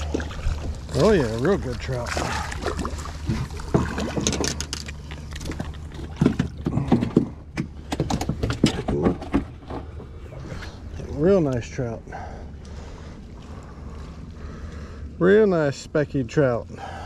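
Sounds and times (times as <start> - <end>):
low steady hum: 0.0 - 17.0
fish handling clicks and rattles: 2.5 - 10.2.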